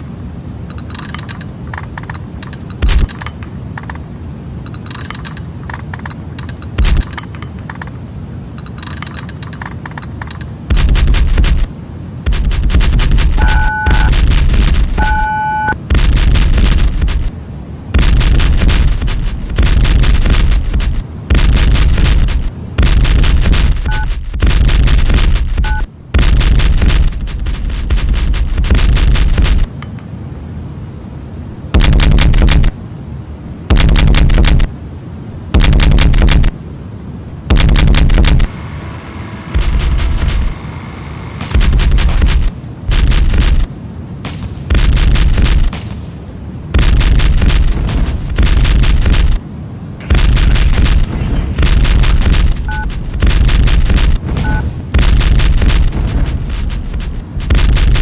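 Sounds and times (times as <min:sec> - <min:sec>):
heavy low rumble: 0:00.0 - 0:38.6, 0:39.5 - 0:40.7, 0:41.4 - 0:58.0
harsh distorted crackling noise: 0:00.0 - 0:58.0
two-tone beep: 0:13.4 - 0:14.1, 0:15.0 - 0:15.8, 0:23.9 - 0:24.1, 0:25.6 - 0:25.9, 0:52.7 - 0:52.9, 0:54.4 - 0:54.7.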